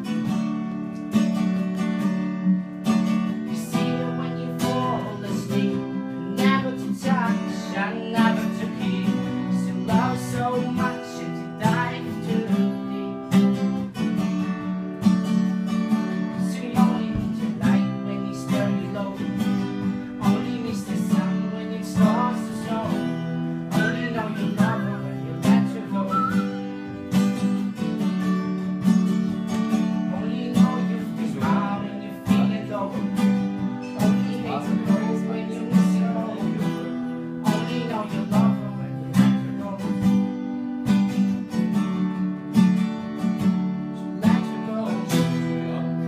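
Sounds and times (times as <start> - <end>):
acoustic guitars strumming: 0.0 - 46.0
person singing: 3.4 - 14.0, 16.2 - 27.0, 30.0 - 40.4, 44.0 - 46.0.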